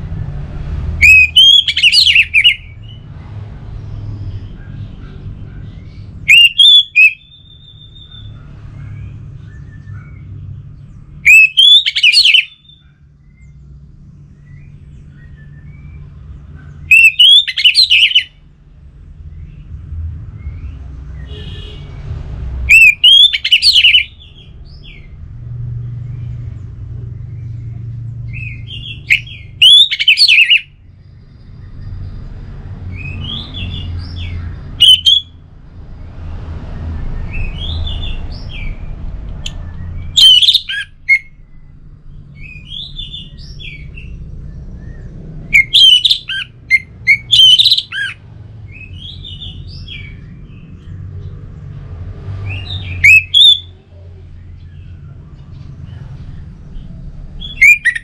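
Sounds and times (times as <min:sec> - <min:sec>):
steady low rumble: 0:00.0 - 0:06.3, 0:12.5 - 0:16.9, 0:30.7 - 0:47.3, 0:53.6 - 0:58.0.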